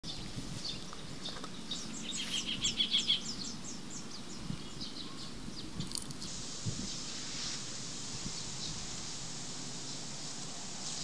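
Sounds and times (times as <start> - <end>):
bird chirping: 0.0 - 6.2
steady outdoor hiss: 0.0 - 11.0.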